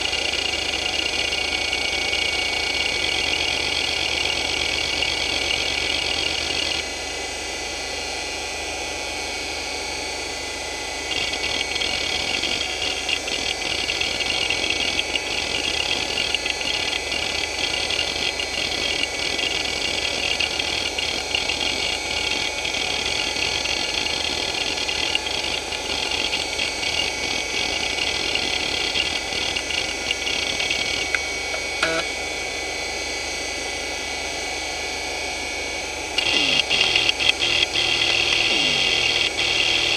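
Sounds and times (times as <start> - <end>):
hard drive spinning whine: 0.0 - 39.9
hard drive heads clicking: 25.9 - 32.1, 36.2 - 39.9.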